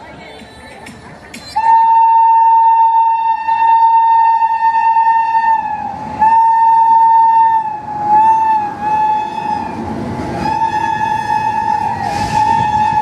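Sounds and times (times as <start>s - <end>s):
rumble of train wagons rolling: 0.0s - 13.0s
locomotive horn blasts: 1.6s - 13.0s.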